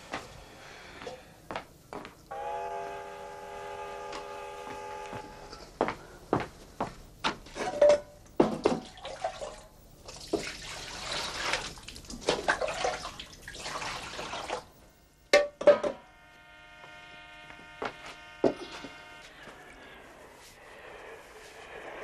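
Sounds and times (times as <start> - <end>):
water poured into basin: 8.8 - 14.7.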